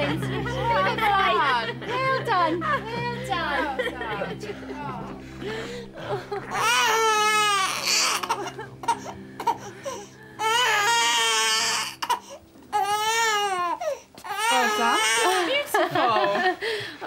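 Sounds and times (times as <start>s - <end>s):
newborn baby crying: 5.6s - 15.5s.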